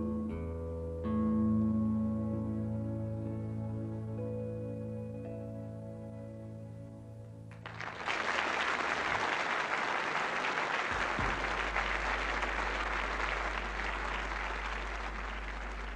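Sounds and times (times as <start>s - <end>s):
guitar chord: 0.0s - 7.4s
audience applauding: 7.5s - 15.9s
low steady hum: 11.0s - 15.9s.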